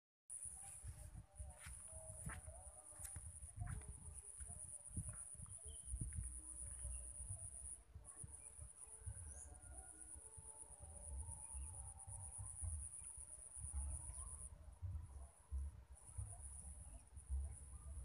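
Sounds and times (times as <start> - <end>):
insects droning: 0.3 - 14.4.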